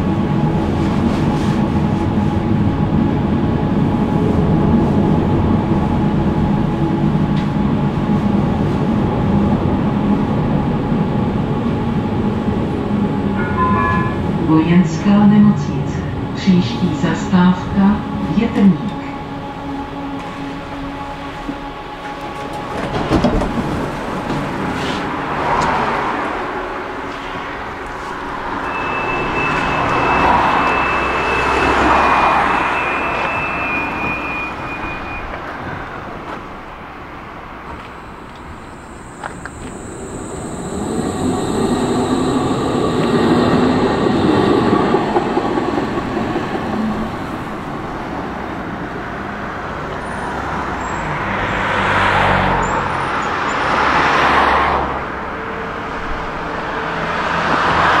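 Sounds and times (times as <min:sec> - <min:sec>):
electric tram moving off: 0:00.0 - 0:58.0
steady high tone: 0:13.2 - 0:22.0, 0:28.5 - 0:35.4, 0:37.8 - 0:48.3
road traffic passing: 0:19.0 - 0:58.0.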